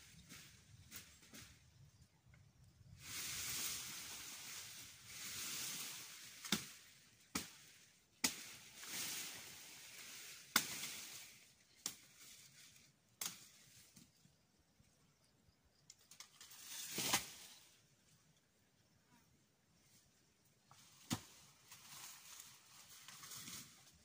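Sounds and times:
leaves and branches rustling: 0.0 - 14.3, 15.9 - 18.5, 19.8 - 24.0
machete chopping woody stems: 6.4 - 8.6, 10.5 - 11.1, 13.2 - 13.6, 21.0 - 21.4.

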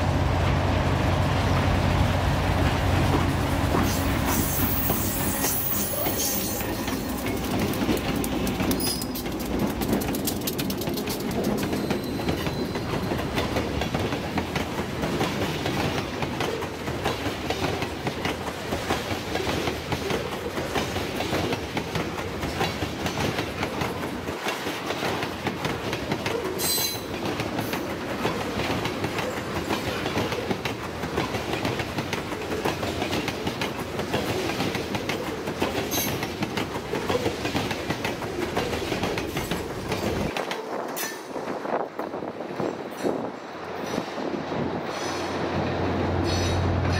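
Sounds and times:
diesel locomotive rumble: 0.0 - 12.1, 44.6 - 46.9
freight train rumbling past: 0.0 - 46.9
high wheel squeals: 3.8 - 7.1, 11.6 - 13.1.

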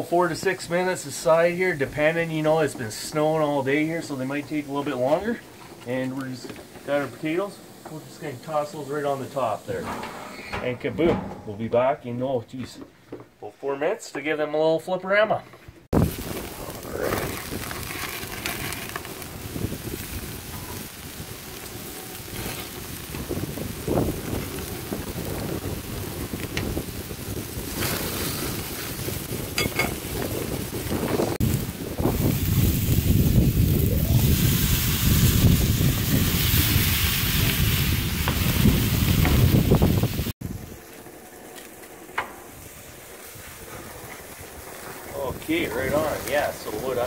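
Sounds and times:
steaks sizzling on a grill: 0.0 - 9.8, 16.0 - 47.0
wind buffeting microphone: 15.9 - 18.4, 19.0 - 40.8.

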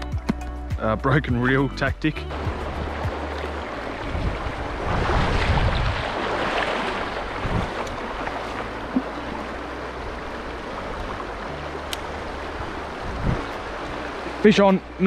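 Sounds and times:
fast-flowing river rushing: 2.3 - 15.0
wind buffeting microphone: 2.3 - 15.0.

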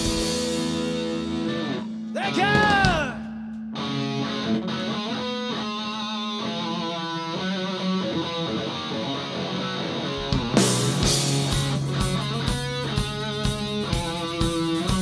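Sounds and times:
electric guitar melody: 0.0 - 15.0
drum hits: 2.2 - 3.8.

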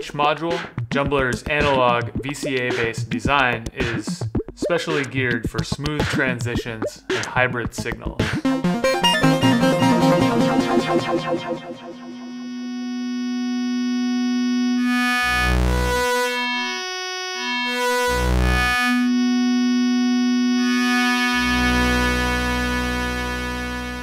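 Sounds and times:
deep bass layer: 0.0 - 16.8, 17.6 - 24.0
synthesizer drone: 8.4 - 24.0.

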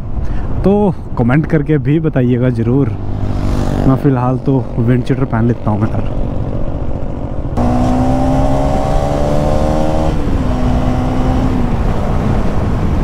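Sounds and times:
wind noise: 4.6 - 13.0.

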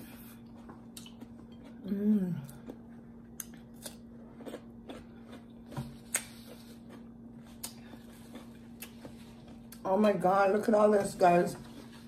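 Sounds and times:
faint steady hum: 0.0 - 12.0
crunching and chewing cucumber: 0.4 - 9.9.

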